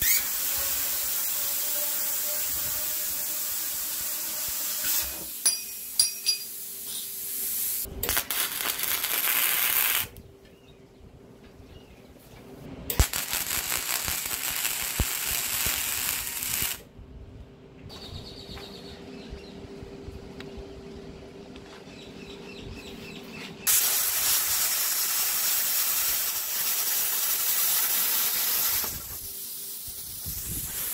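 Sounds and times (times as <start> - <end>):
plasma cutter hissing: 0.0 - 5.5, 6.2 - 10.1, 23.7 - 30.9.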